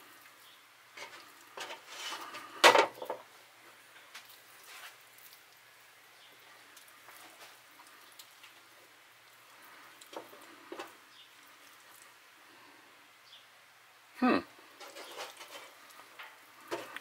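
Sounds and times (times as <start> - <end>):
wet squishing of raw meat: 6.6 - 10.4.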